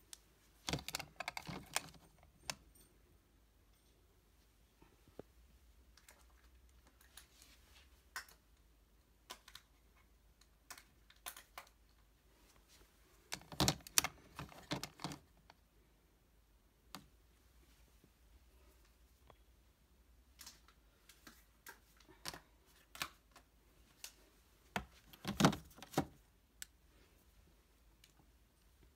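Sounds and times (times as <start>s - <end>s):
plastic compacts clicking: 0.6s - 2.6s, 13.3s - 15.6s.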